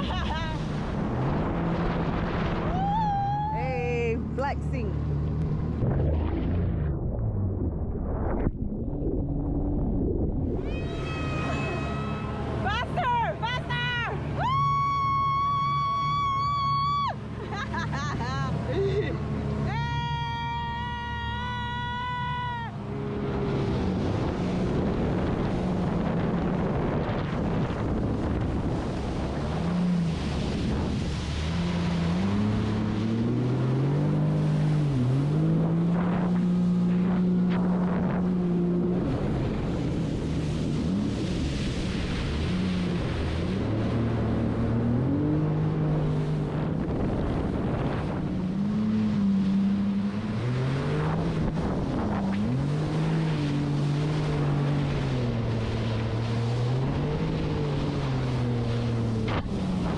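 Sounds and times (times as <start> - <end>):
jet ski engine revving: 0.0 - 6.9, 10.6 - 59.9
wind rush on microphone: 5.4 - 11.6, 23.1 - 33.0, 35.4 - 59.9.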